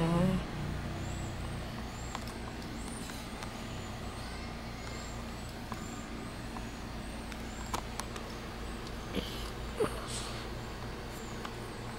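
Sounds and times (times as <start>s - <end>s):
faint high chirp: 0.0s - 7.9s.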